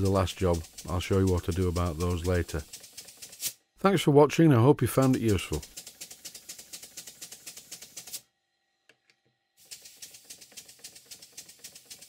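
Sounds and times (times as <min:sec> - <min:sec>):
model steam engine ticking: 0:00.0 - 0:03.5, 0:04.9 - 0:08.2, 0:09.6 - 0:12.0.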